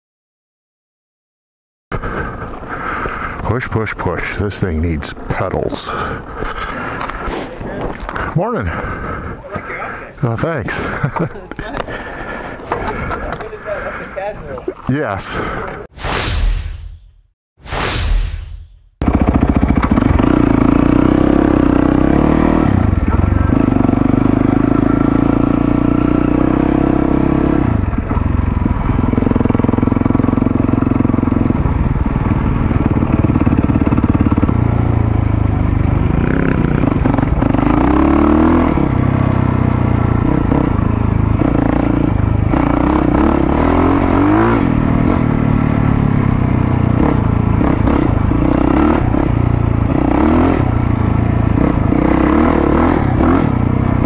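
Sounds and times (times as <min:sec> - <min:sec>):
dirt bike engine revving: 0:19.0 - 0:54.0.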